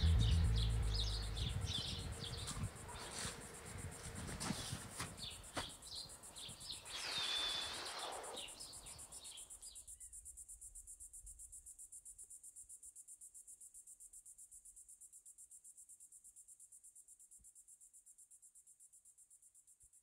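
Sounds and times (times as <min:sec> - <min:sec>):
crickets chirping: 0:00.0 - 0:20.0
soft hiss: 0:06.6 - 0:09.1
short bird-like chirps: 0:06.6 - 0:09.5
whistle-like tone: 0:06.9 - 0:08.5.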